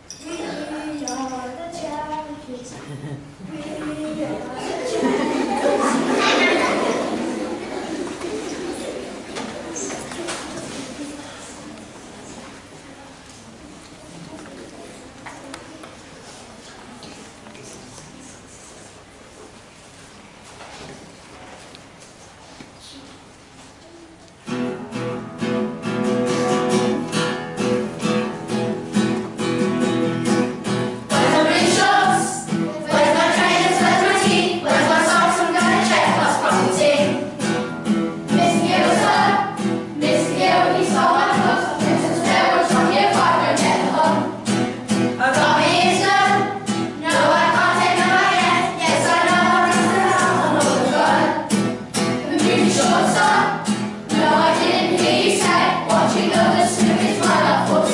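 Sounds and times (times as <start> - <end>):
children singing together: 3.4 - 11.2, 30.6 - 57.9
strummed acoustic guitar: 24.4 - 57.9.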